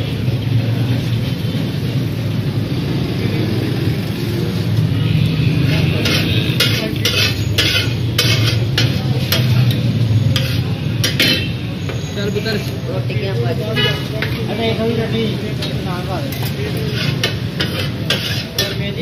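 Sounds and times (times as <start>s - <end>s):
metal spatula scraping griddle: 5.6s - 11.6s, 13.7s - 14.4s, 16.3s - 19.0s.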